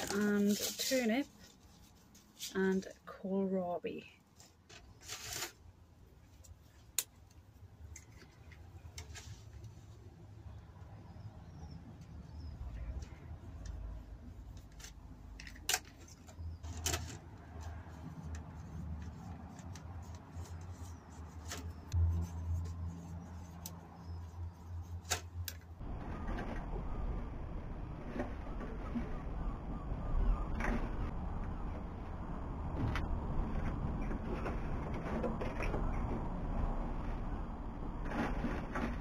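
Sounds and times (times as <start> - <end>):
compost rustling: 0.0 - 2.9
clicks and scratches of labels: 6.3 - 9.9, 12.0 - 27.2.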